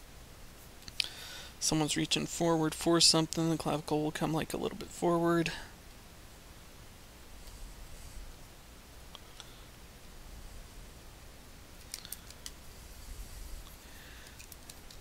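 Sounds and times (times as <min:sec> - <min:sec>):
faint room hiss: 0:00.0 - 0:15.0.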